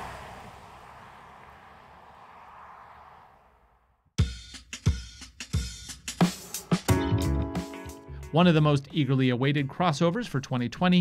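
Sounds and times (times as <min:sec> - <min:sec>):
car tyre and road noise: 0:00.0 - 0:04.2.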